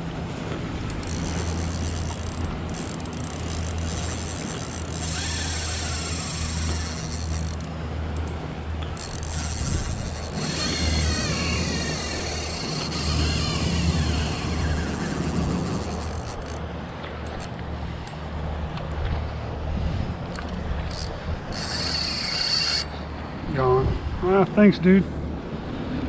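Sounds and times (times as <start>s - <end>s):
fishing reel clicking: 0.9s - 16.6s, 20.8s - 23.0s.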